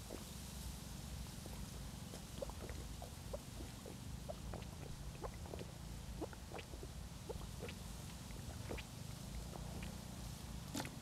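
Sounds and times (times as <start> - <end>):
person chewing wetly: 2.2 - 10.0.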